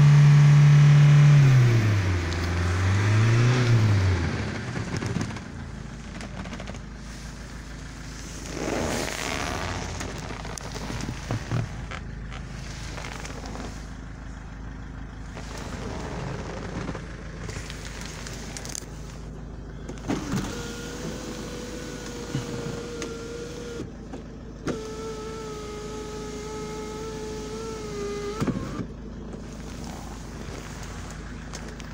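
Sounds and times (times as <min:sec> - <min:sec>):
sunroof motor whine: 0:01.6 - 0:31.9
sunroof clunk: 0:04.5 - 0:07.5.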